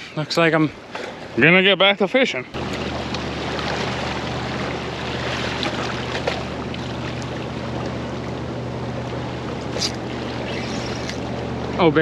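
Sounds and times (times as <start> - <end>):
boat motor hum: 0.0 - 12.0
wind: 0.0 - 12.0
water sloshing against rocks: 2.6 - 8.4.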